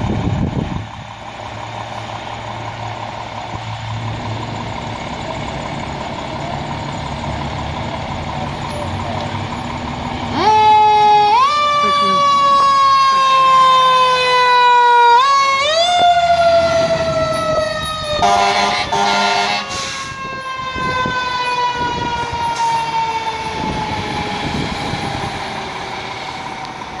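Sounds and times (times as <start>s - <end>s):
fire truck siren winding: 10.2s - 27.0s
air horn blasts: 18.2s - 20.0s.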